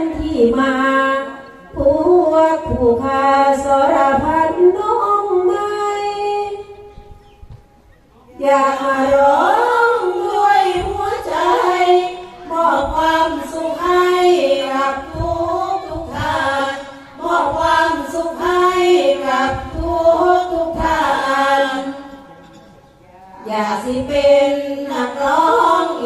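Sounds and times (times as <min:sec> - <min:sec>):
women chanting: 0:08.3 - 0:22.4, 0:23.1 - 0:26.0.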